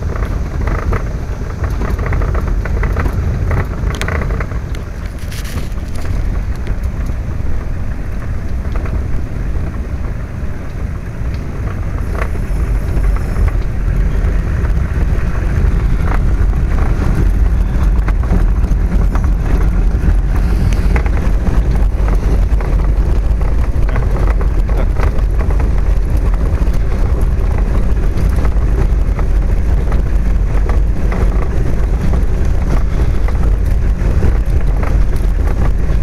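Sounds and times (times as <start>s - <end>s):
small crackles: 0.0s - 36.0s
tyres rumbling on gravel: 0.0s - 36.0s.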